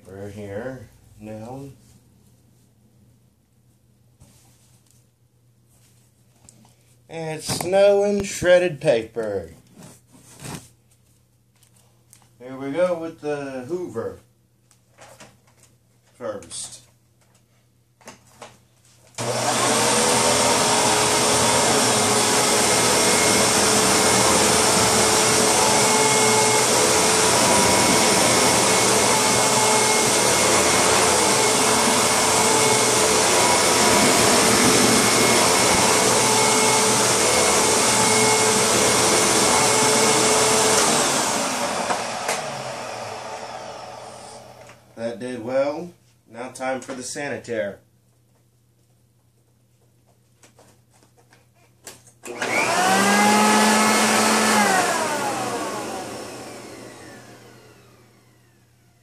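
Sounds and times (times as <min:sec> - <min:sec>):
vacuum cleaner running with whine: 0:19.2 - 0:44.9, 0:52.2 - 0:59.0
vacuum motor winding down: 0:19.2 - 0:44.9, 0:52.3 - 0:59.0.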